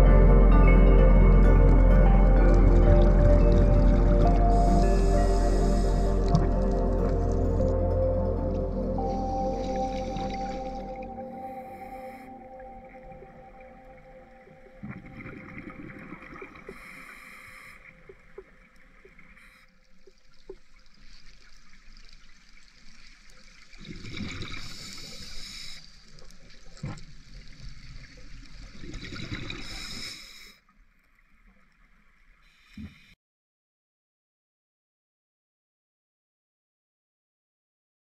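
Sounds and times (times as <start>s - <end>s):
underwater bubbling and gurgling: 1.2s - 33.1s
steady hiss: 24.6s - 26.0s, 29.6s - 30.6s.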